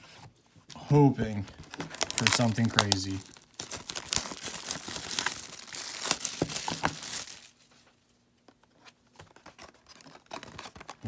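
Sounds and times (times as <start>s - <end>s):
plastic wrap crinkling and tearing: 1.2s - 7.6s.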